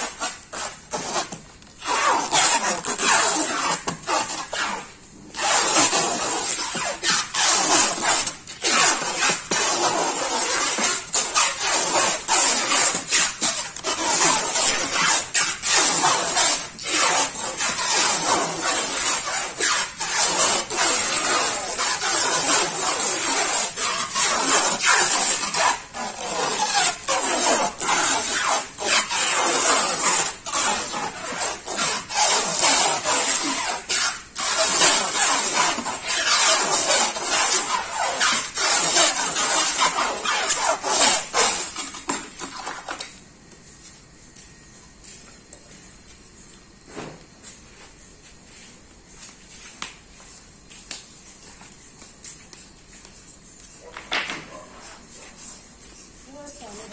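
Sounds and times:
plastic stretch film screeching: 0:00.0 - 0:43.2.

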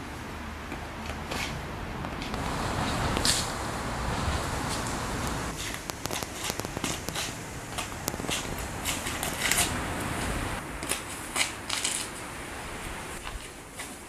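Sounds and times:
sneakers scraping gritty concrete: 0:01.0 - 0:03.4, 0:04.2 - 0:12.2
low steady rumble: 0:02.4 - 0:05.6.

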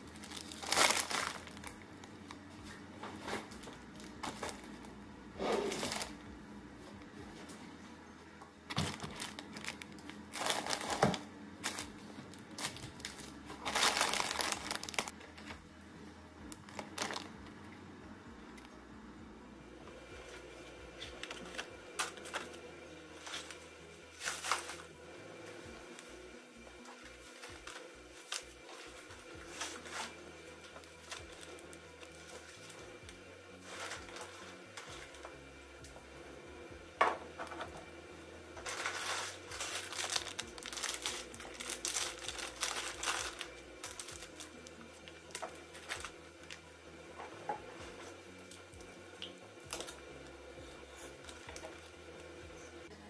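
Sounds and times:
plastic packaging crinkling: 0:00.0 - 0:02.5, 0:05.7 - 0:06.2, 0:08.7 - 0:15.5, 0:16.5 - 0:17.5, 0:24.2 - 0:24.9, 0:38.6 - 0:46.6, 0:49.6 - 0:50.0
shopping bag rustling: 0:00.0 - 0:06.3, 0:08.7 - 0:15.5, 0:16.5 - 0:17.5, 0:20.2 - 0:24.9, 0:26.9 - 0:33.0, 0:33.6 - 0:35.3, 0:38.6 - 0:46.6
faint steady hum: 0:00.0 - 0:53.0.

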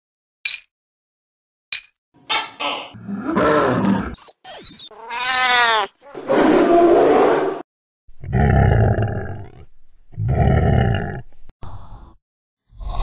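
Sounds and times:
animal cry falling in pitch: 0:04.9 - 0:07.5.

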